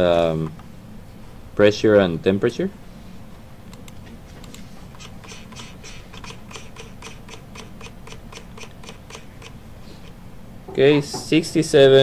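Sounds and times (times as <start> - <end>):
steady low hum: 0.0 - 12.0
computer mouse clicks and taps: 3.7 - 9.6.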